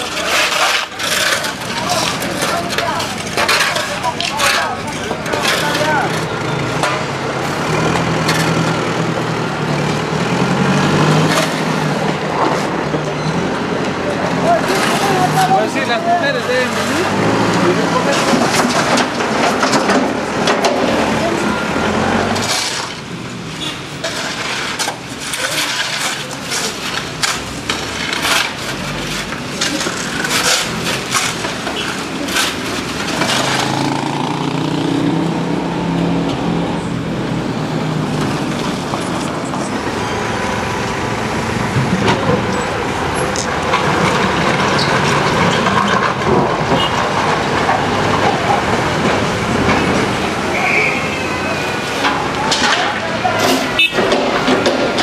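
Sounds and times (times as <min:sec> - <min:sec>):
shovels scraping mud and stones: 0:00.0 - 0:08.8, 0:11.0 - 0:12.8, 0:14.4 - 0:34.5, 0:49.6 - 0:55.0.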